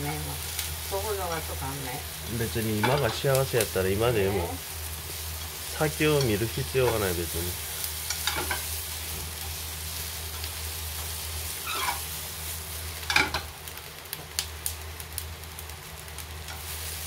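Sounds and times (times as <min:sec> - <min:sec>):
food sizzling in frying pan: 0:00.0 - 0:17.0
short falling squeaks: 0:11.6 - 0:12.0.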